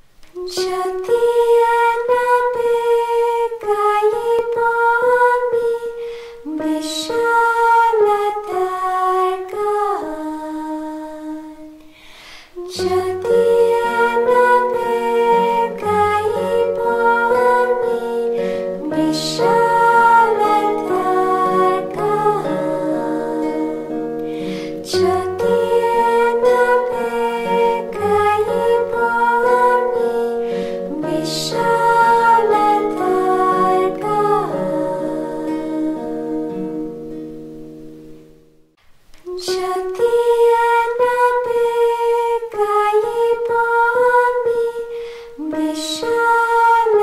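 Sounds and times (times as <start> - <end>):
women's vocal group singing: 0.4 - 11.9, 12.6 - 36.6, 39.3 - 47.0
plucked notes: 12.6 - 41.9.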